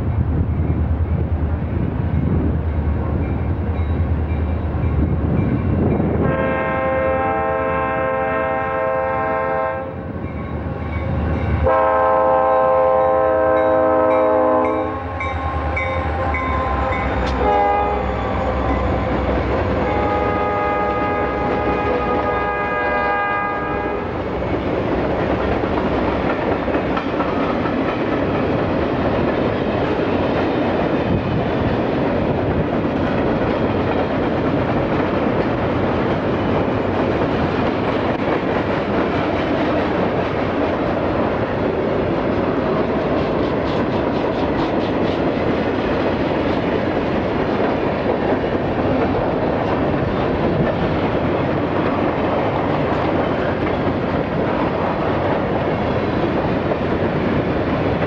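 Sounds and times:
locomotive air horn blasts: 6.2s - 10.0s, 11.6s - 19.0s, 19.8s - 24.1s.

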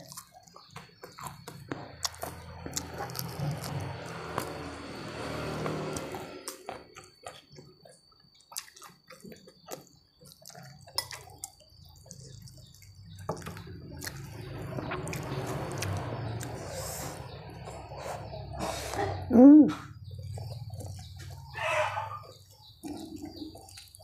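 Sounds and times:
wet chewing: 0.0s - 19.2s, 20.0s - 24.0s
soft squishing of food by hand: 6.5s - 16.6s, 20.0s - 24.0s.

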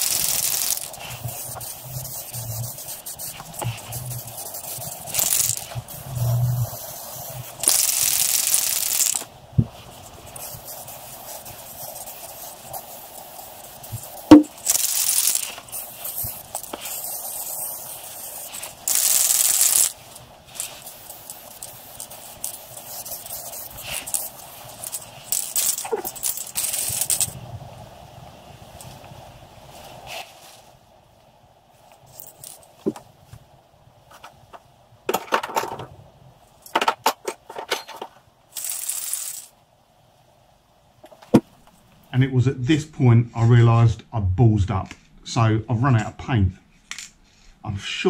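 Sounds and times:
spray can rattling clicks: 0.0s - 1.8s, 4.5s - 5.8s, 7.6s - 9.3s, 14.1s - 20.0s, 24.0s - 27.4s, 36.6s - 39.5s
spray can hissing: 0.0s - 27.4s, 38.5s - 39.5s.

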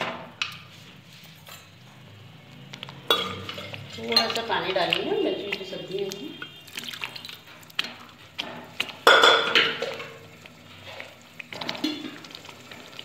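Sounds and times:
metal utensil knocking on pan: 8.5s - 10.1s.

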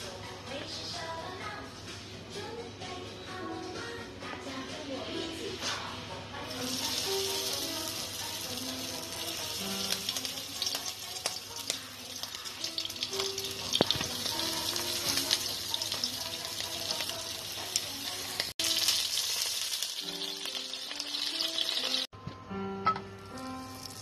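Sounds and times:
food sizzling in hot oil: 6.4s - 22.1s, 23.3s - 24.0s.

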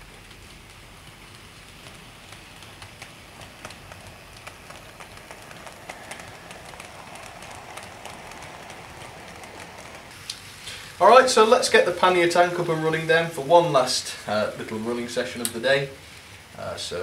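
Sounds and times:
wheels clicking over track: 0.0s - 10.1s.

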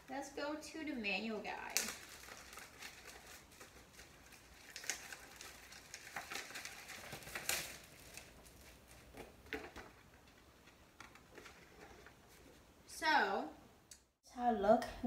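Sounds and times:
plastic bag crinkling: 1.3s - 12.3s
paper rustling: 1.4s - 12.7s.

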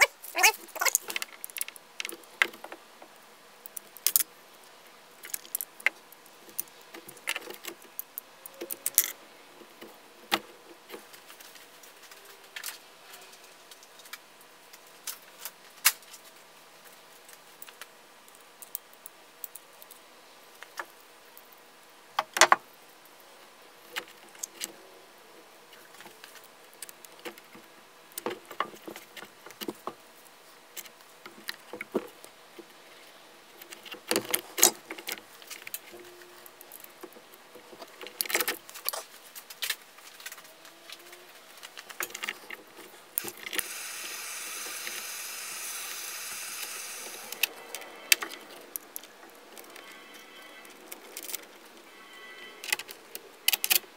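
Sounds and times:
steady hiss: 42.3s - 52.5s.

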